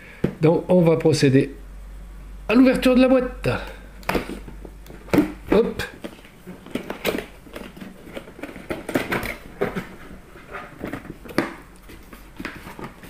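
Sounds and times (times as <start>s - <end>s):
cardboard scraping and rustling: 4.1s - 13.0s.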